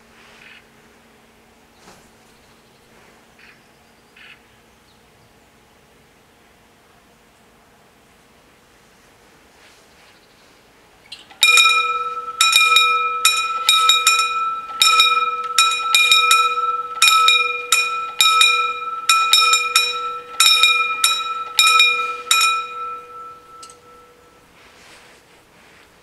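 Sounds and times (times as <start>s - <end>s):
level crossing warning bells: 11.2s - 24.9s.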